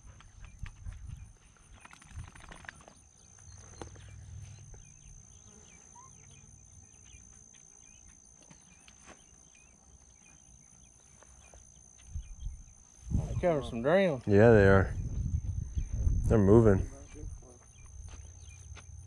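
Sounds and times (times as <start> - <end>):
low wind: 0.0 - 8.0, 9.6 - 19.0
short insect chirps: 0.2 - 13.9
microphone handling rumble: 12.2 - 13.6, 14.7 - 17.4.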